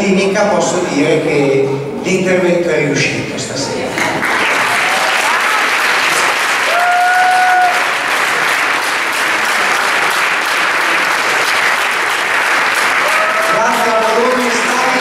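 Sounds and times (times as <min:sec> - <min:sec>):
audience applauding: 0:04.0 - 0:15.0.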